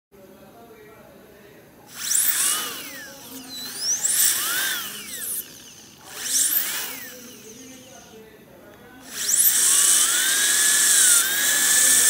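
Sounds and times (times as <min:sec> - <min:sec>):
dental drill whining: 0:01.9 - 0:08.2, 0:09.0 - 0:12.0.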